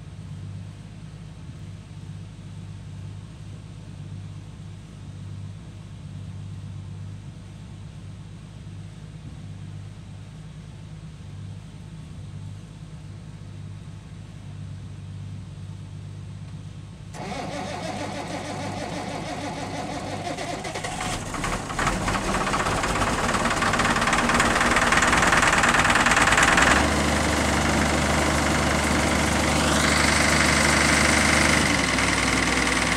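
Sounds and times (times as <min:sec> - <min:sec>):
low steady hum: 0:00.0 - 0:32.9
diesel engine starting and idling: 0:17.1 - 0:32.9.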